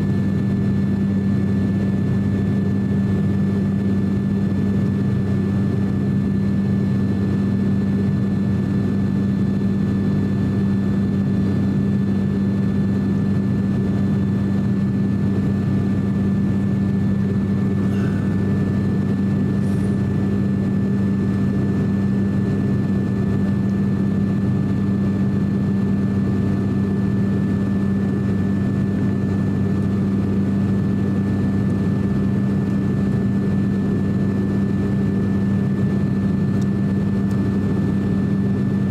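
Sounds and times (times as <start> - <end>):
turboprop engines droning: 0.0 - 38.9
steady whining tones: 17.0 - 21.6.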